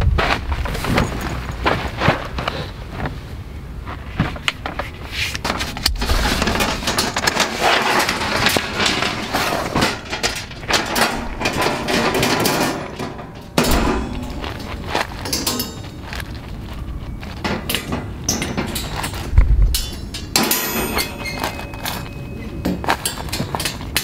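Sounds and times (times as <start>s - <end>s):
metal grids clattering: 5.4s - 24.0s
loud thump: 13.6s - 14.9s
cloth rustling: 14.0s - 19.4s.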